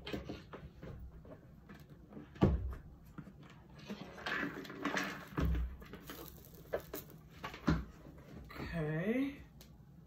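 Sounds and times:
plastic knocks and clatter: 0.0 - 8.5
popcorn rustling: 3.5 - 8.5.

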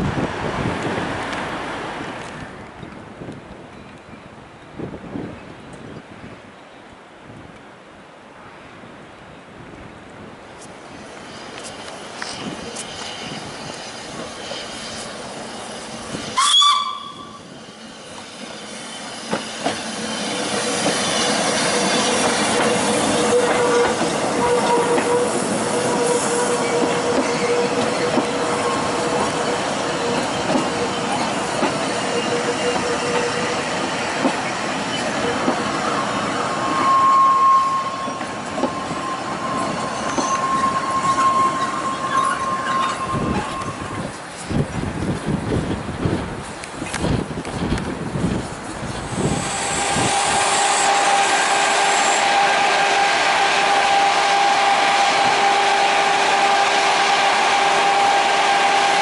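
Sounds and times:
moving train running noise: 10.5 - 59.0
steam train whistle blast: 16.2 - 17.6, 20.7 - 31.0, 35.2 - 44.0, 49.3 - 59.0.

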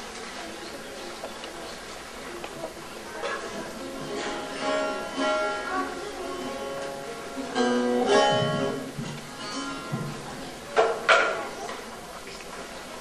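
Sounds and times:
long-necked lute plucked notes: 3.9 - 10.4.

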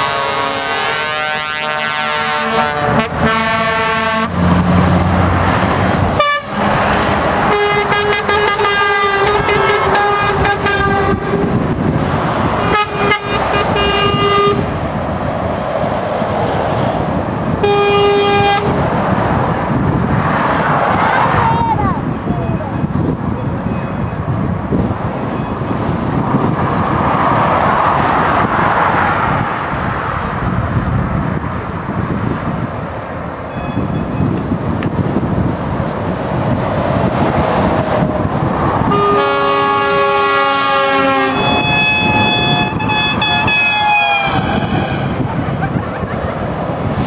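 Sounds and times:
lorry air horns: 0.0 - 4.4, 6.2 - 6.7, 7.5 - 11.6, 12.6 - 14.8, 17.6 - 18.8, 38.9 - 45.3
lorries driving past: 0.0 - 47.0.

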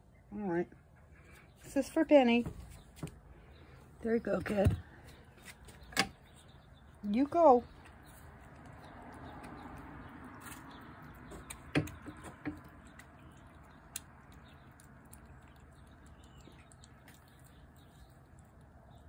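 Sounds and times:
cat chewing wet food: 7.7 - 19.0.

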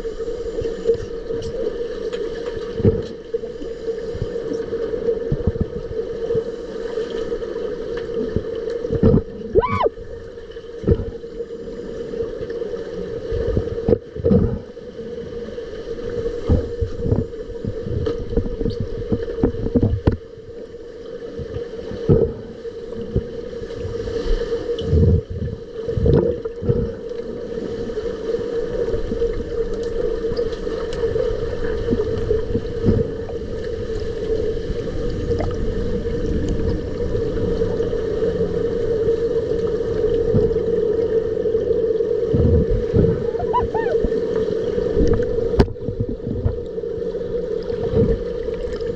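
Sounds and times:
low water rumble: 0.0 - 48.9
steady underwater hum: 0.0 - 48.9
dull underwater thumps and knocks: 8.9 - 9.3, 22.0 - 22.5, 45.0 - 46.6.

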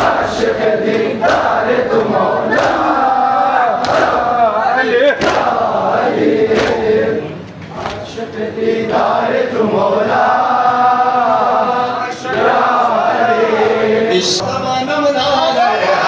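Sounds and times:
crowd of men chanting: 0.0 - 14.5
sharp slaps: 0.9 - 2.9, 3.8 - 4.2, 5.2 - 5.6, 6.5 - 6.9, 7.8 - 8.0.

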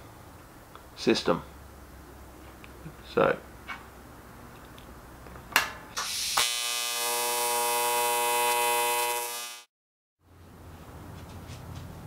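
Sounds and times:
electric buzzing hum: 5.9 - 9.7.

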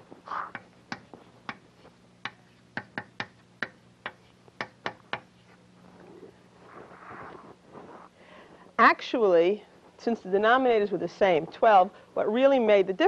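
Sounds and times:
chalk tapping on blackboard: 2.2 - 5.6.

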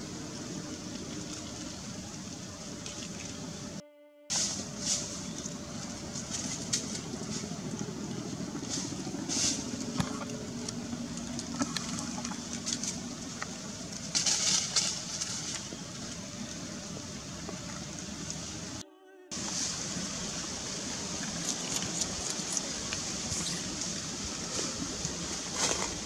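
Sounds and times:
low rumble and hiss: 0.0 - 26.0
brief high hiss: 4.3 - 5.2.

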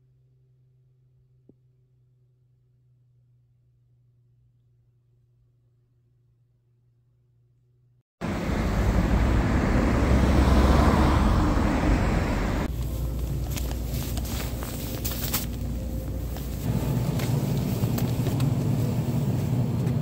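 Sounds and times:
road traffic rumble: 8.2 - 20.0
shop background noise: 12.6 - 20.0
groceries rustling in plastic basket: 12.7 - 20.0.

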